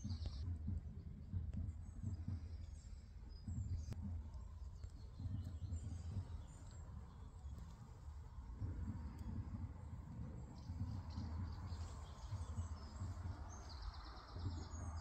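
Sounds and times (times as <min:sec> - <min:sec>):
low uneven microphone rumble: 0:00.0 - 0:15.0
small birds chirping: 0:00.0 - 0:15.0.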